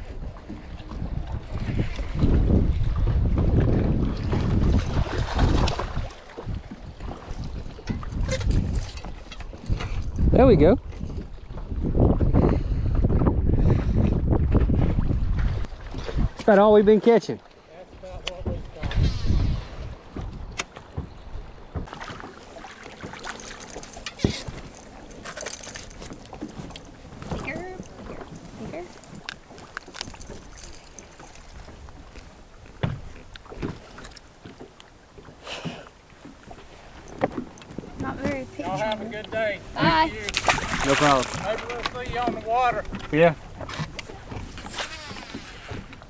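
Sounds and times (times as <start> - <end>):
wind buffeting microphone: 0.0 - 16.4, 18.0 - 21.9
water lapping at a boat: 0.0 - 46.0.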